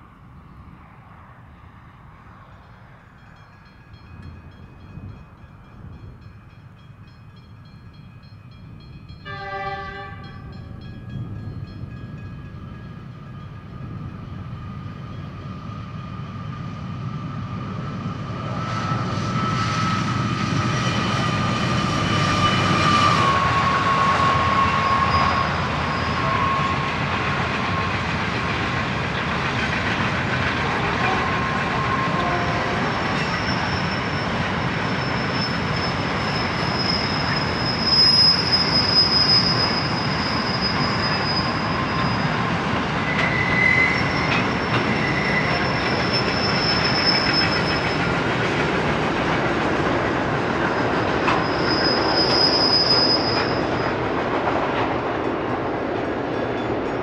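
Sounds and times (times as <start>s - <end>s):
train wagons rumbling past: 0.0s - 57.0s
locomotive engine whine: 8.5s - 57.0s
locomotive horn blast: 9.2s - 10.6s, 30.6s - 32.9s.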